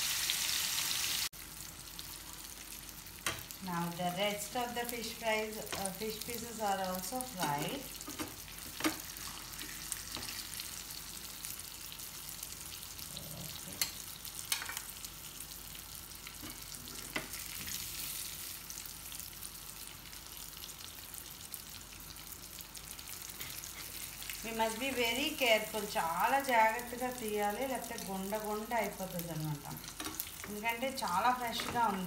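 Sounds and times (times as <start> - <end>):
fish sizzling in oil: 0.0 - 32.0
spatula scraping a pan: 23.3 - 24.1.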